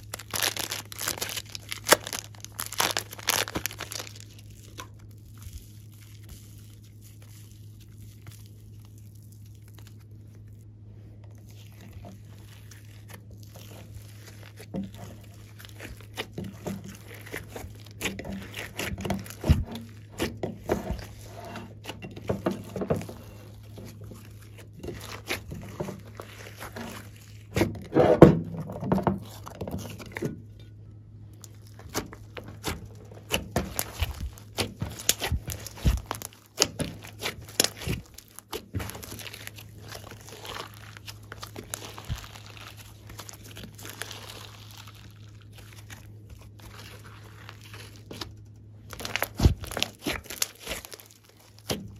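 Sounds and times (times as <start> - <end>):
low steady hum: 0.0 - 51.9
slime squishing and clicking: 31.4 - 44.9.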